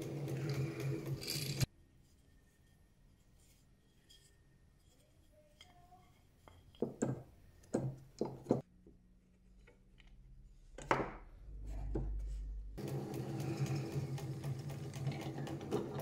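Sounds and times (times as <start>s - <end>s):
drill press motor humming: 0.0s - 1.7s, 12.8s - 16.0s.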